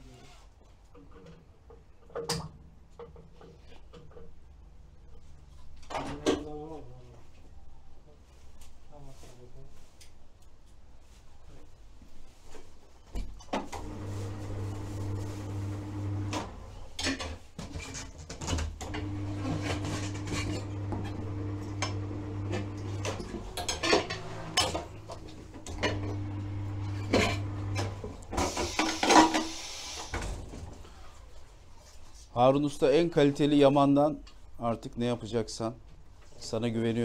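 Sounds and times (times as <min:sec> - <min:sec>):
tyre changer motor humming: 0:13.8 - 0:16.4, 0:18.9 - 0:28.3
air hissing: 0:28.3 - 0:30.4.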